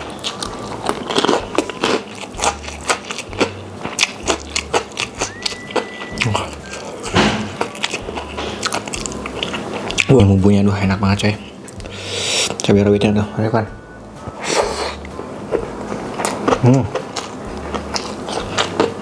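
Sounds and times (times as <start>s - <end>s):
wet chewing mouth sounds: 0.0s - 10.1s, 14.4s - 19.0s
steady high tone: 5.1s - 7.1s, 13.2s - 16.0s.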